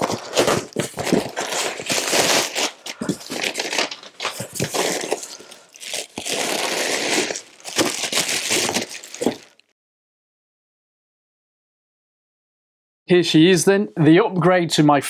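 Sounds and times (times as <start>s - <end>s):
packaging crinkling and rustling: 0.0s - 9.7s.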